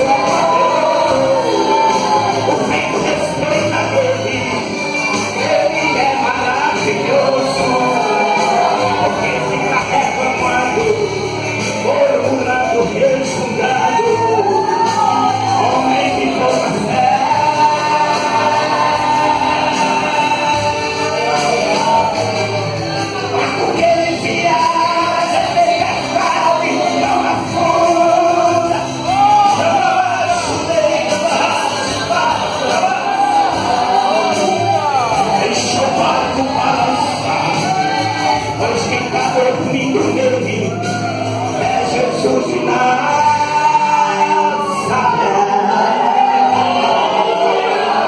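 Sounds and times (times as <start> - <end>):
gospel band accompaniment: 0.0 - 48.0.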